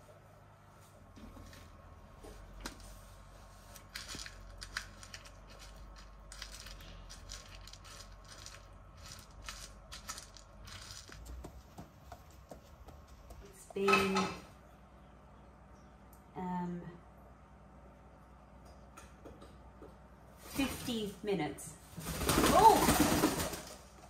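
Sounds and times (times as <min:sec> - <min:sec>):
seed grains rattling in bowl: 0:03.8 - 0:11.4.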